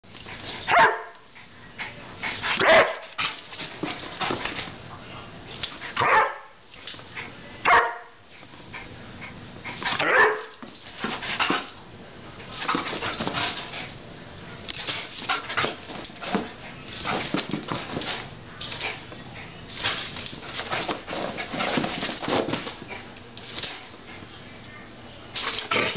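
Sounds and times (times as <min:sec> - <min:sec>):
dog barking: 0:00.7 - 0:01.2, 0:02.6 - 0:03.0, 0:06.0 - 0:06.6, 0:07.7 - 0:08.2, 0:10.0 - 0:10.6.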